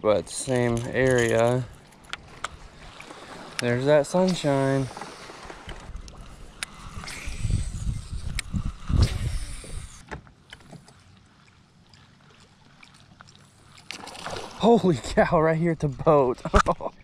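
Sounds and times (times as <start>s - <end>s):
wind buffeting microphone: 5.5s - 10.0s.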